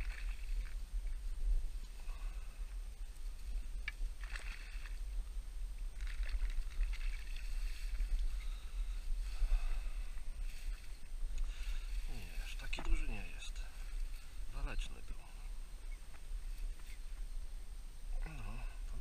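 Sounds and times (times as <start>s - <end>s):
water splashing: 0.0s - 1.2s, 3.9s - 5.1s, 5.9s - 8.4s
wind rumble on microphone: 0.0s - 19.0s.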